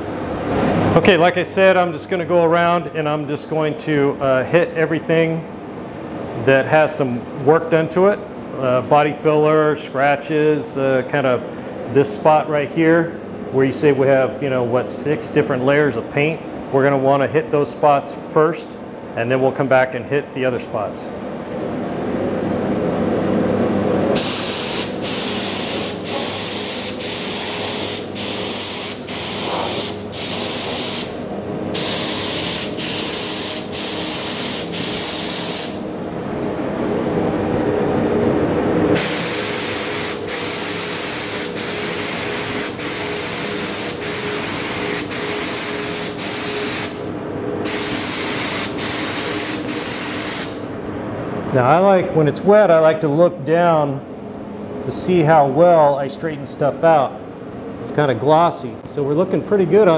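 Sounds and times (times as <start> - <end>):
steady hum: 0.0 - 59.9
spray gun air hiss: 24.2 - 35.9, 39.0 - 50.7.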